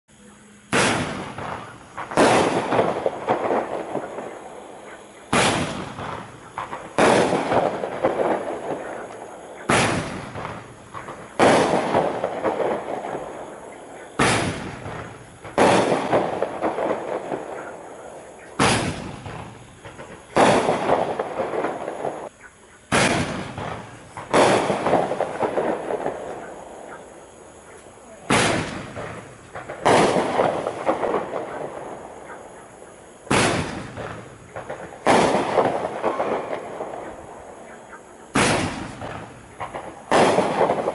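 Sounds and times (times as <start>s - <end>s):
firework ball bursting: 0.6s - 40.9s
roman candle launch pops: 18.5s - 21.8s, 38.4s - 40.9s.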